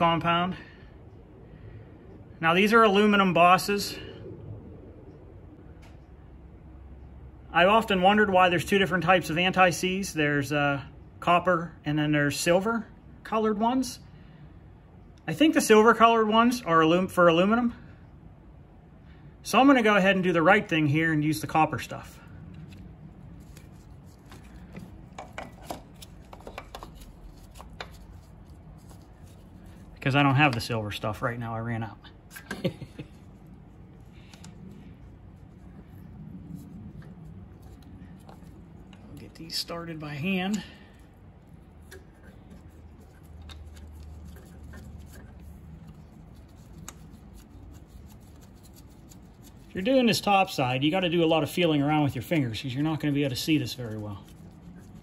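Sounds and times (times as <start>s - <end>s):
low steady hum: 0.0s - 55.0s
faint rubbing: 40.9s - 50.2s.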